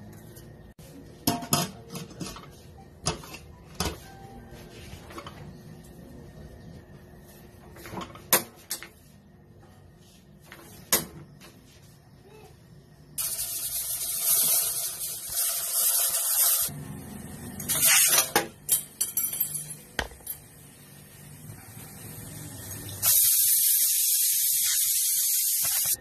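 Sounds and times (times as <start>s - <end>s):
pressure cooker hissing steam: 13.2s - 16.7s, 21.8s - 26.0s.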